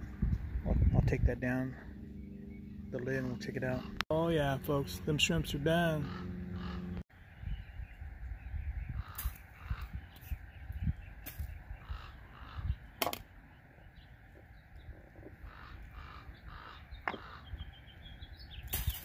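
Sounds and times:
birds calling: 0.0 - 19.0.

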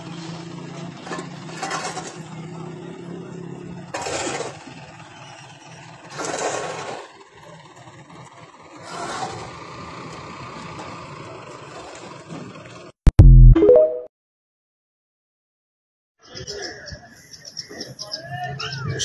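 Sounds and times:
vehicle engine running: 0.0 - 13.3.

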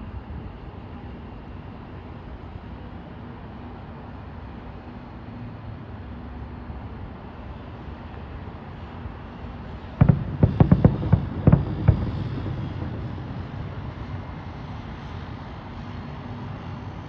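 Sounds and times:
fireworks bangs: 9.8 - 15.6
low rolling rumble: 9.9 - 16.5.

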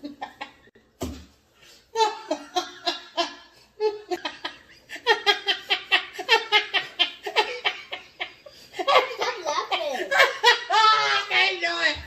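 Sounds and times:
woman laughing hard: 2.0 - 11.5.

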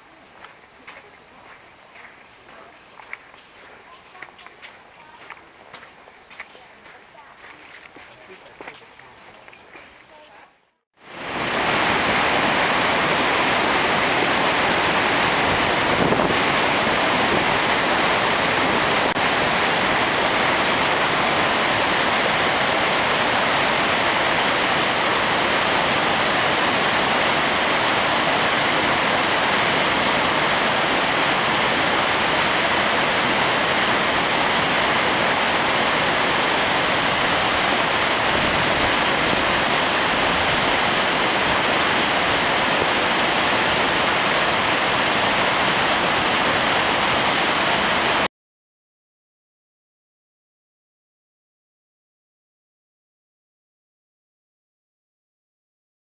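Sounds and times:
waterfall rushing: 11.0 - 48.3.

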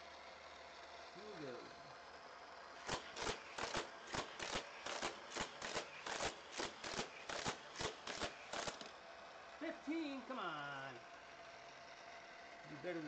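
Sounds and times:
toy booster whirring flicks: 2.7 - 9.1.

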